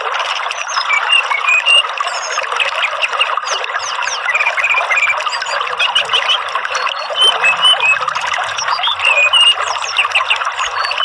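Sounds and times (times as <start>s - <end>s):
running water trickling: 0.0s - 11.0s
bird song chirps and whistles: 0.5s - 11.0s.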